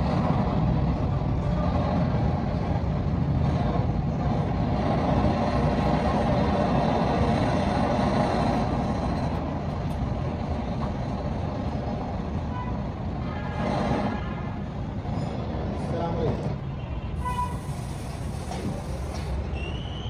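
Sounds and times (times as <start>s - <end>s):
broad hiss: 17.2s - 19.5s.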